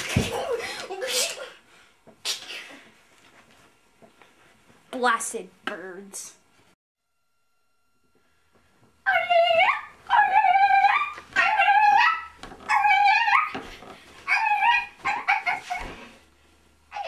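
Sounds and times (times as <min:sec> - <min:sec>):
high whining cries: 0:09.0 - 0:16.0.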